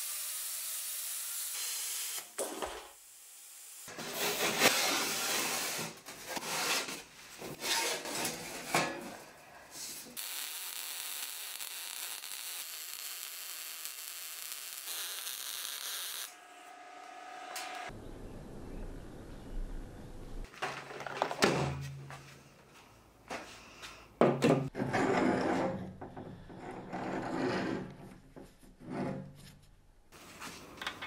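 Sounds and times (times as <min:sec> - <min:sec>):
angle grinder rasping: 0:10.2 - 0:17.9.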